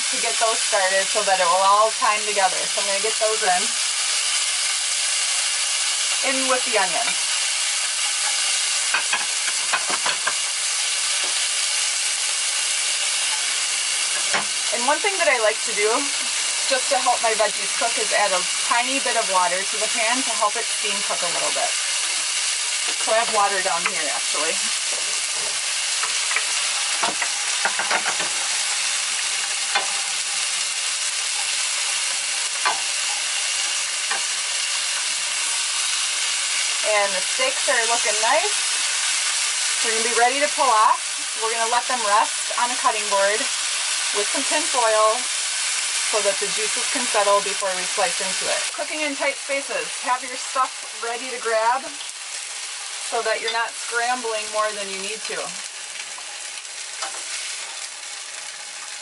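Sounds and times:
food sizzling in pans: 0.0 - 59.0.

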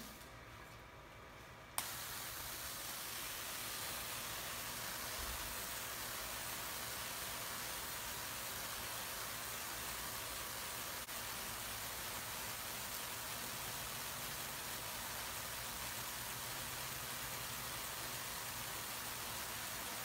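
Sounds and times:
tesla coil hissing: 1.8 - 11.6.

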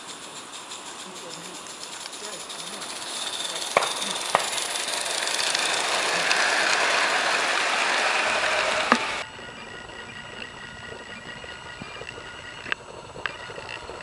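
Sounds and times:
steam hissing: 0.0 - 9.3
wheel clicks on rail joints: 0.0 - 14.0
wheels rumbling on track: 0.0 - 14.0.

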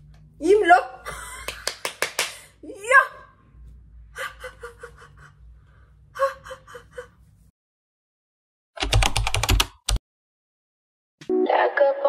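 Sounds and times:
woman laughing breathily: 4.1 - 7.3.

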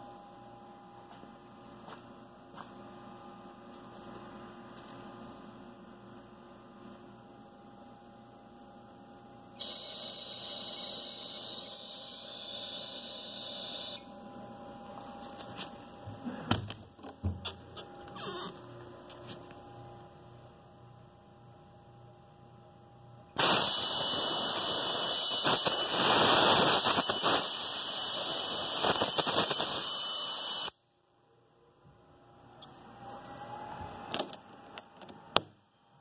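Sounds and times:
high-pitched sonicator hiss: 9.6 - 14.1, 23.4 - 30.8.

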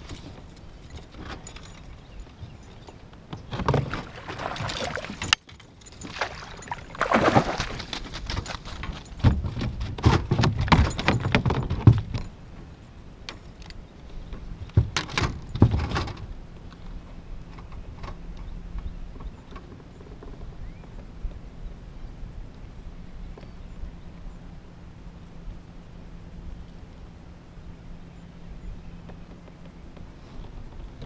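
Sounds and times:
gear knocking against plastic kayak: 3.3 - 12.3
fish splashing at water surface: 3.8 - 5.4, 6.0 - 8.2.

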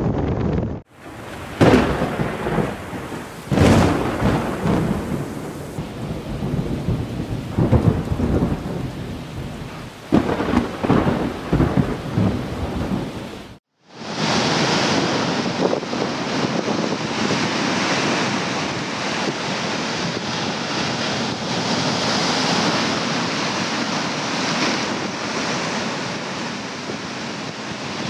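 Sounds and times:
rolling thunder: 0.0 - 13.6
breaking surf: 0.0 - 28.0
steady rain: 0.9 - 28.0.

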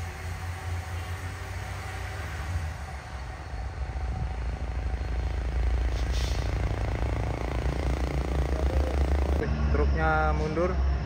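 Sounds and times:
heavy diesel truck engine labouring: 0.0 - 11.0
air hiss: 5.8 - 7.1.

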